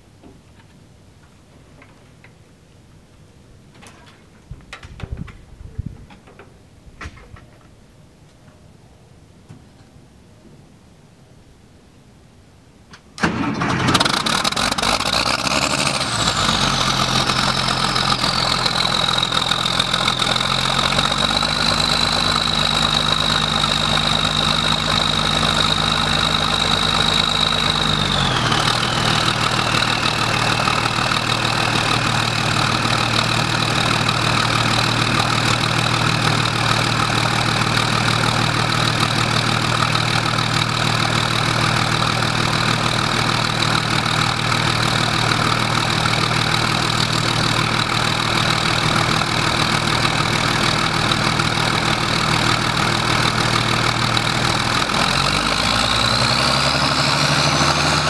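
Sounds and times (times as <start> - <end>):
diesel engine idling: 13.2 - 58.0
high engine tone: 13.2 - 58.0.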